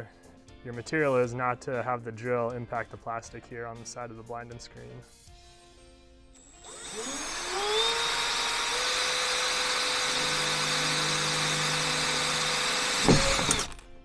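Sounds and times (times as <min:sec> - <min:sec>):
drill bit droning through metal: 0:06.4 - 0:13.7
drill motor whining: 0:06.4 - 0:13.8.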